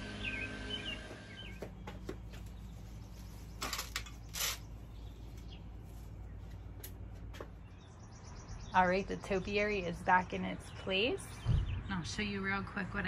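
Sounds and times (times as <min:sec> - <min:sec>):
birds chirping: 0:00.0 - 0:13.0
scraping and rustling: 0:02.0 - 0:07.6.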